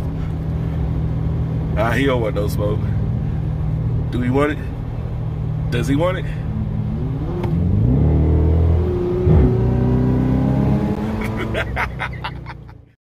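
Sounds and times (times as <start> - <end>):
car engine accelerating: 2.5 - 12.9.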